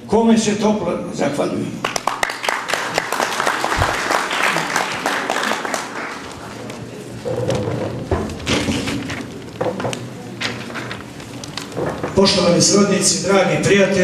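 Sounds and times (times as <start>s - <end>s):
audience applauding: 1.8s - 6.7s.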